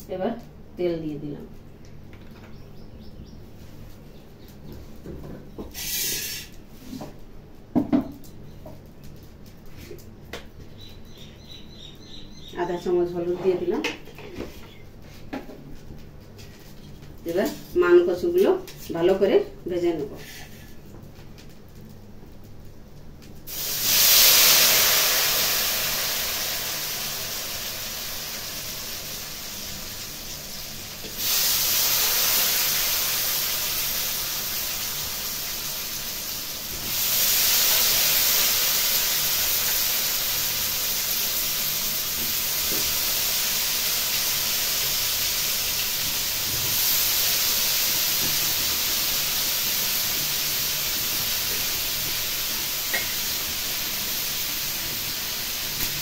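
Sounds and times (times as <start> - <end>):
food frying in hot oil: 5.7 - 6.9, 23.4 - 56.0.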